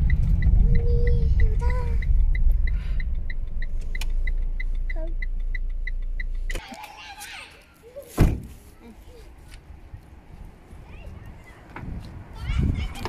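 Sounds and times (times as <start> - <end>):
turn signal ticking: 0.0 - 8.0
car engine and road rumble: 0.0 - 13.0.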